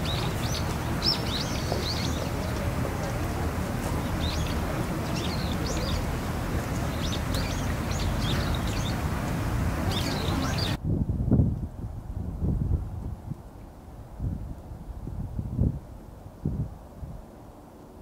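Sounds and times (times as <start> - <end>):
small birds chirping: 0.0 - 10.8.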